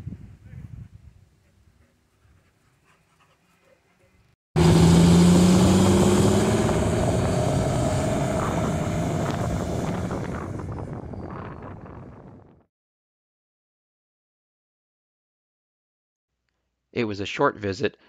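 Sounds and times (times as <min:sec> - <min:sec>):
bus diesel engine pulling away: 0:04.6 - 0:12.3.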